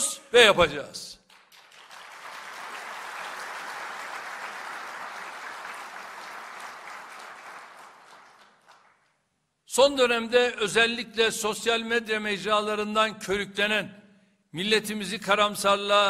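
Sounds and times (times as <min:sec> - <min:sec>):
audience applauding: 0:01.3 - 0:09.2.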